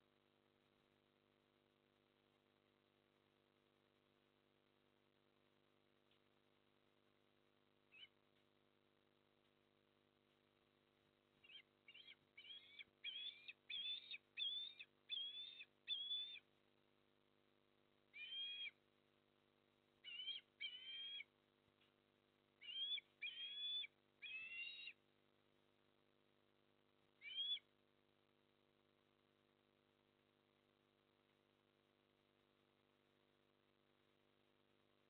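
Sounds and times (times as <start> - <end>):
faint steady hum: 0.0 - 35.0
osprey calling: 7.9 - 8.2, 11.4 - 16.5, 18.1 - 18.8, 20.0 - 21.3, 22.6 - 25.0, 27.2 - 27.7.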